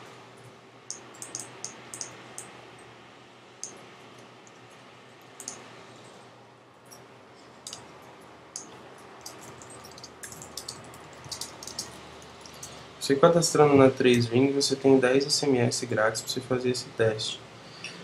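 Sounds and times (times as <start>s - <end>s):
computer keyboard keystrokes: 0.9s - 2.5s, 8.6s - 12.6s.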